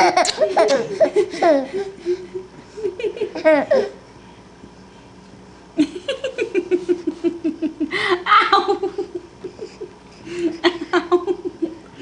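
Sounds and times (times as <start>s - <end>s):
baby laughing: 0.0s - 2.2s, 3.2s - 4.0s.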